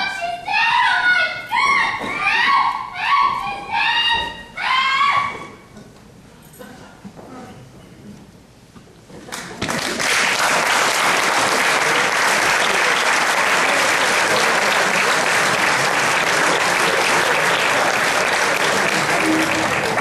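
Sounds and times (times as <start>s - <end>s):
audience applauding: 9.3s - 20.0s.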